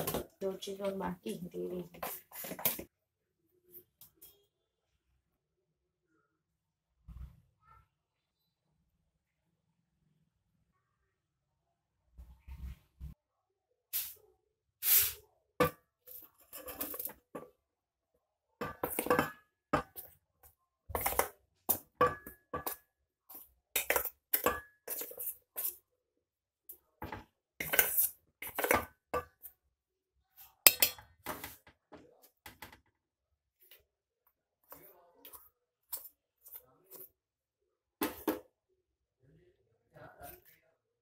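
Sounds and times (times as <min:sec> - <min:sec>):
spoon scraping metal bowls: 0:16.1 - 0:17.5, 0:18.6 - 0:20.1, 0:20.9 - 0:25.8, 0:27.1 - 0:29.5.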